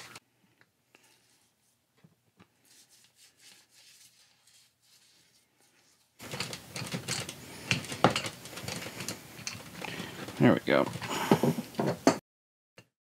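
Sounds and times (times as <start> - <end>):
brush scrubbing metal: 2.6 - 6.3.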